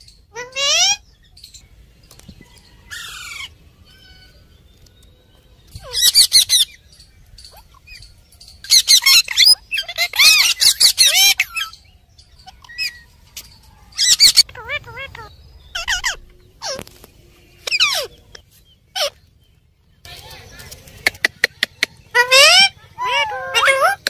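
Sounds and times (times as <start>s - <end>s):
harsh squawking chatter: 0.0s - 1.1s, 2.6s - 19.3s, 20.0s - 24.0s
parakeet calling: 0.3s - 1.1s, 5.7s - 6.8s, 7.5s - 13.2s, 13.9s - 16.9s, 17.5s - 19.2s, 22.0s - 24.0s.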